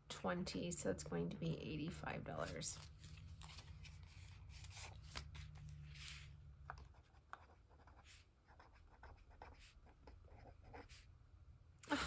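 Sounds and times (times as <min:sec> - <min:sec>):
ballpoint pen scratching on paper: 0:06.7 - 0:11.1.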